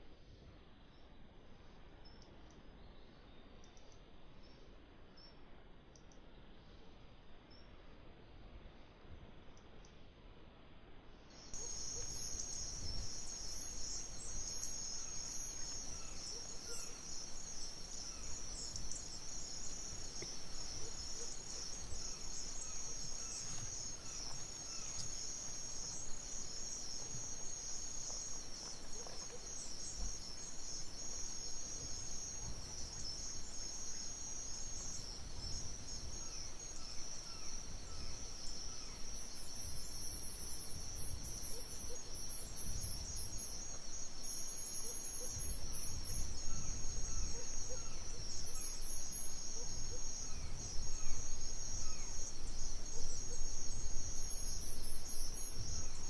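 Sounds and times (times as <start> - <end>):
crickets chirping: 11.3 - 56.0
pulsing insect call: 11.4 - 56.0
bird chirps: 11.5 - 39.1.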